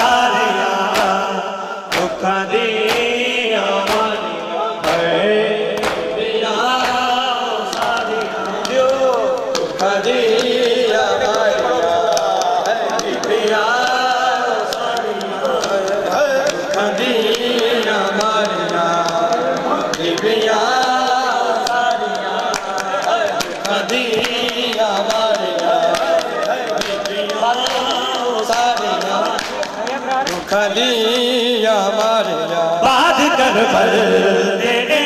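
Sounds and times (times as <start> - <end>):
men chanting a lament: 0.0 - 35.0
hands slapping chests: 0.9 - 1.2, 1.9 - 2.2, 2.8 - 3.2, 3.8 - 4.2, 4.8 - 5.1, 5.8 - 6.2, 6.8 - 11.4, 21.6 - 30.6.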